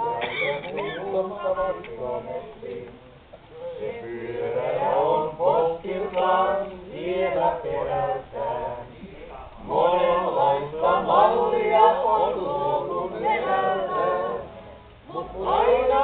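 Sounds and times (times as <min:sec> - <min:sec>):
men singing unaccompanied: 0:00.0 - 0:16.0.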